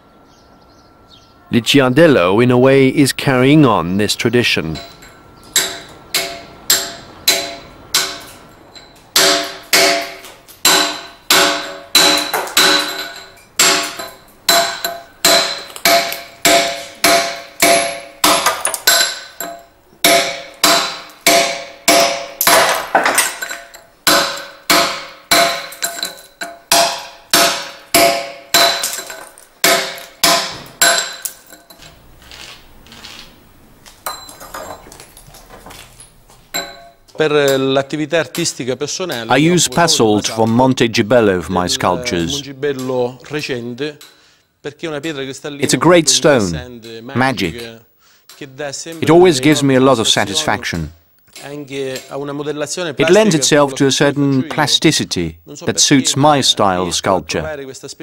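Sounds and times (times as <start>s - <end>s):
hammer striking chisel into stone: 9.2s - 31.4s.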